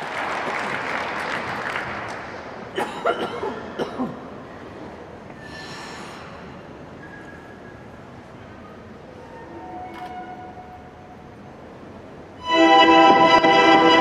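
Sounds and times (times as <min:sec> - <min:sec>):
audience applause: 0:00.0 - 0:02.7.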